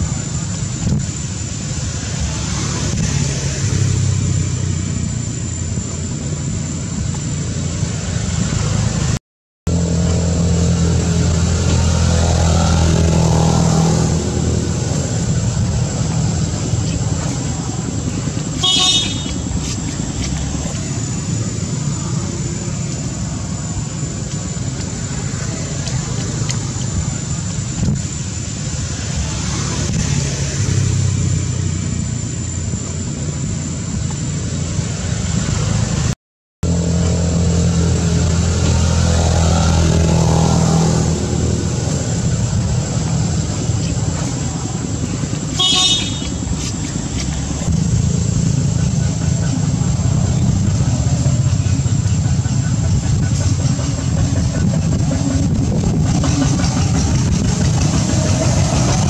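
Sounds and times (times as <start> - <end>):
vehicle and motorbike engines: 0.0 - 59.0
car horn toot: 18.6 - 19.5, 45.5 - 46.4.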